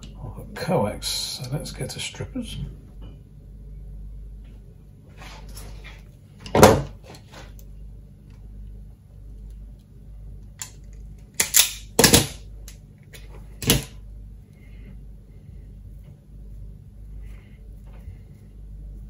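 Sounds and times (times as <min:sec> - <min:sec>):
wire strippers snapping: 0:10.6 - 0:14.0.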